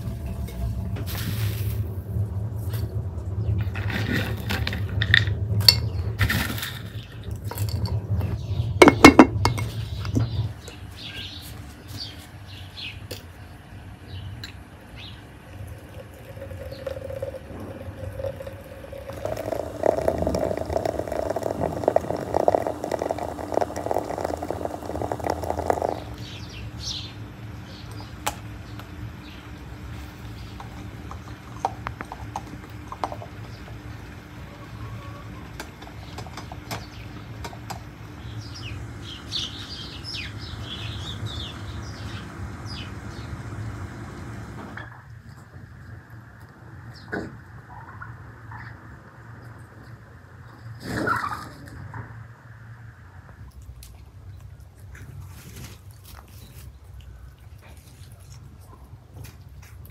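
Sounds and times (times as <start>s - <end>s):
water running into a teapot: 15.3s - 26.4s.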